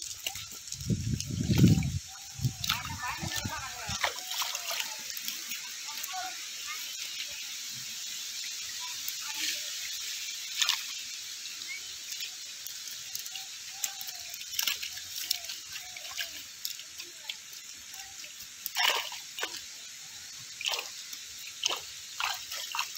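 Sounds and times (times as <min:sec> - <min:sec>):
steady hiss: 0:00.0 - 0:22.9
fish slapping in wet net: 0:02.6 - 0:05.0, 0:18.8 - 0:19.6.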